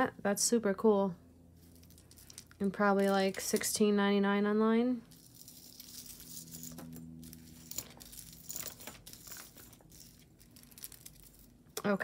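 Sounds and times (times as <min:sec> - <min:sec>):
faint steady hum: 0:00.0 - 0:12.0
plastic packaging crinkling: 0:07.4 - 0:11.7.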